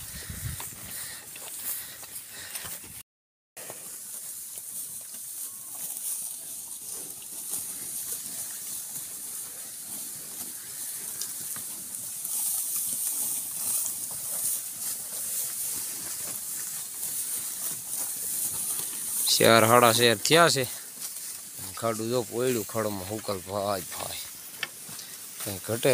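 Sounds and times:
animals tearing and chewing grass: 0:03.6 - 0:25.9.

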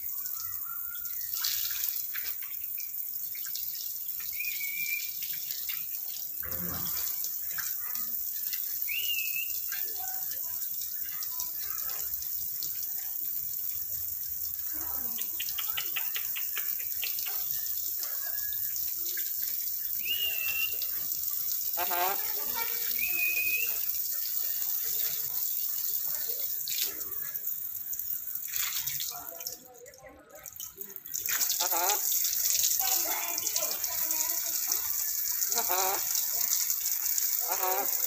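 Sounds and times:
bird whistled chirps: 0:04.3 - 0:05.2, 0:08.9 - 0:09.6, 0:20.0 - 0:20.8, 0:23.0 - 0:23.9.

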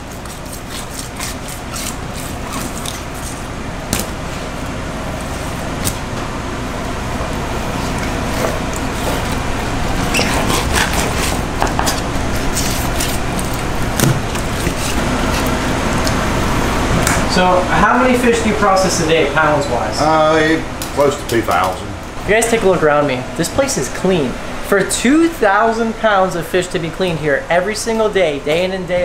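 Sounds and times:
knife scraping cutting board: 0:00.0 - 0:03.4, 0:10.0 - 0:13.6, 0:14.3 - 0:15.6
air-conditioning noise: 0:00.0 - 0:29.0.

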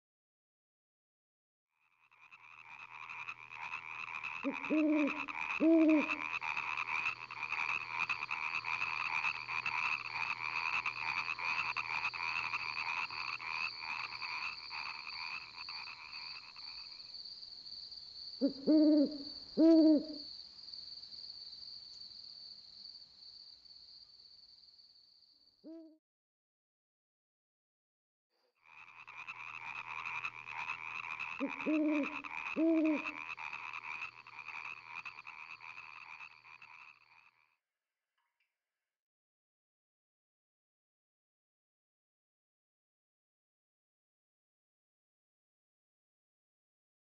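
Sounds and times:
frogs croaking: 0:01.8 - 0:20.4, 0:28.6 - 0:37.6
crickets chirping: 0:02.1 - 0:25.6, 0:28.6 - 0:37.4
high insect trill: 0:02.2 - 0:25.5
night bird hooting: 0:03.0 - 0:15.3, 0:18.4 - 0:20.3, 0:25.7 - 0:26.0, 0:29.3 - 0:36.8.

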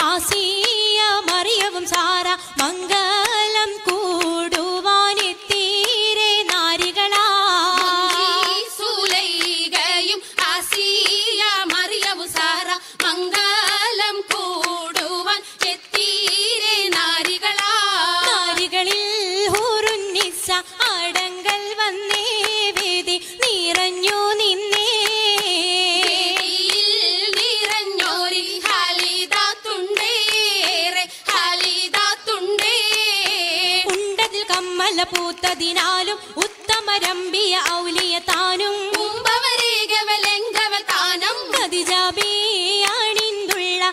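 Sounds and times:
rhythmic hand claps: 0:00.0 - 0:43.9.

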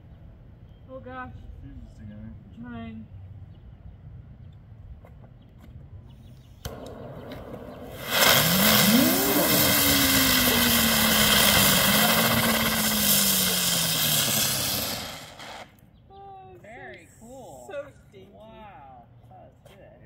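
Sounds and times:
fuse clicking and sputtering: 0:06.6 - 0:15.6
whirring whistle: 0:06.6 - 0:15.7
hiss of firework sparks: 0:07.6 - 0:15.7.

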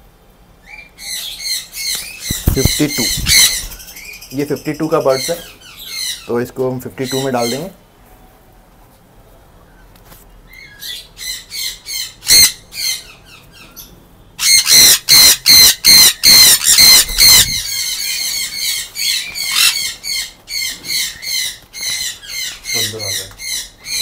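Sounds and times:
parrots screeching: 0:00.7 - 0:06.3, 0:10.5 - 0:24.0.

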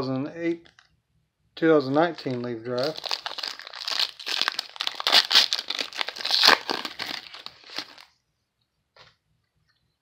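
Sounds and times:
card pack wrapper tearing and crinkling: 0:01.9 - 0:08.1
cards rustling: 0:01.9 - 0:08.1.

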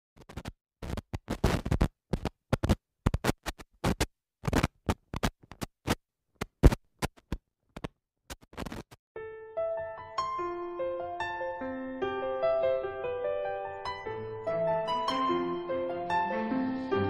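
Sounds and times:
old film crackle: 0:00.2 - 0:09.0.

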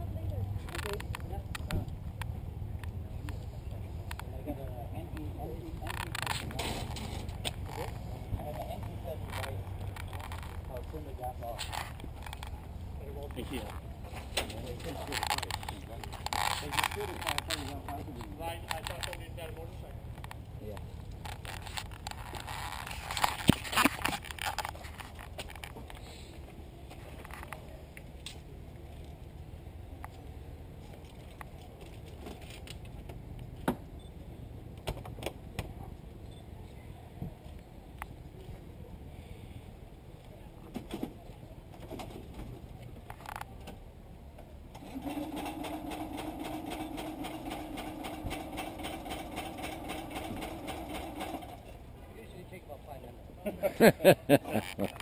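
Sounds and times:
small engine starting and idling: 0:44.8 - 0:51.7.

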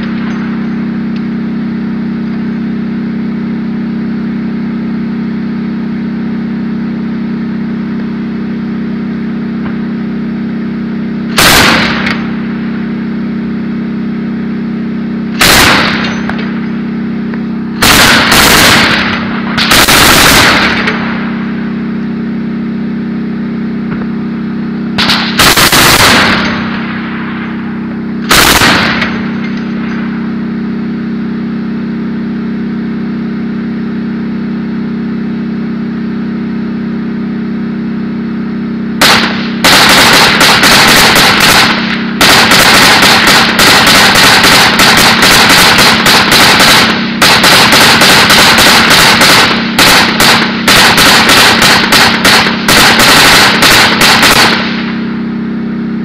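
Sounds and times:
steady low drone: 0:00.0 - 0:56.0
automatic gunfire: 0:11.3 - 0:12.3, 0:15.4 - 0:16.4, 0:17.8 - 0:21.1, 0:25.0 - 0:26.9, 0:28.3 - 0:29.6, 0:39.0 - 0:55.0.

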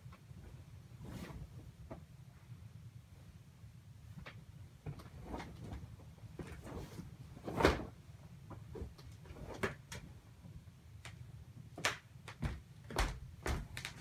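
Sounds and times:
bedding rustling: 0:00.0 - 0:02.5, 0:04.0 - 0:10.7, 0:12.3 - 0:14.0.

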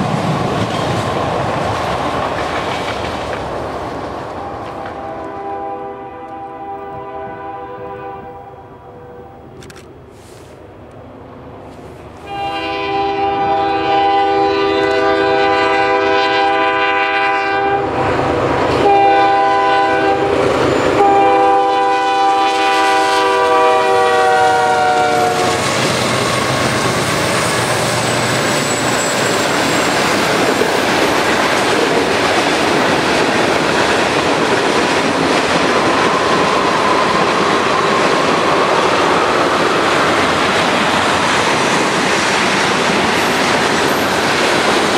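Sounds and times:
locomotive air horn blasts: 0:04.4 - 0:09.5, 0:12.2 - 0:17.9, 0:18.8 - 0:20.4, 0:21.0 - 0:25.7
freight cars rolling past: 0:25.2 - 0:44.9.

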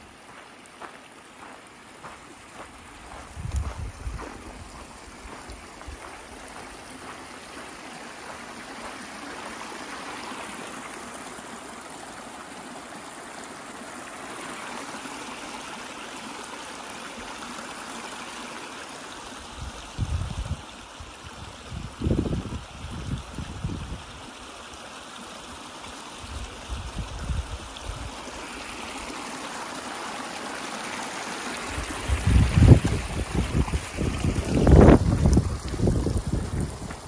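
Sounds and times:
creek flowing over rocks: 0:00.0 - 0:37.0.

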